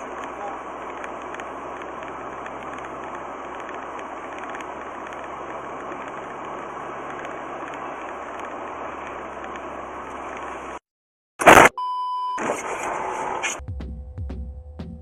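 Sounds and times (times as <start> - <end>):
car road and engine noise: 0.0 - 10.8.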